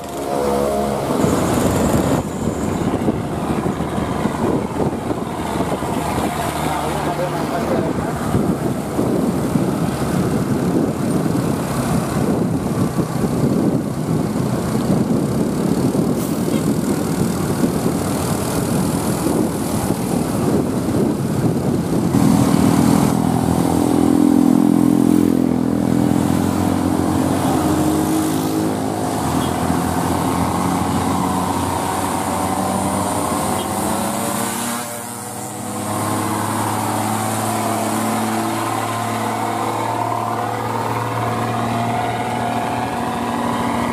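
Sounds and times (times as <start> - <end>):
diesel truck engine pulling uphill: 0.0 - 43.9
road noise: 0.0 - 43.9
wind noise: 0.0 - 43.9.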